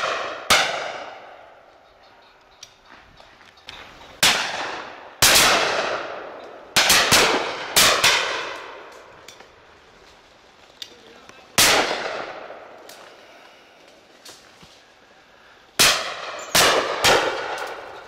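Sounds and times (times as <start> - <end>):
shotgun shots echoing: 0.0 - 1.4, 4.2 - 8.9, 11.6 - 12.8, 15.8 - 18.0.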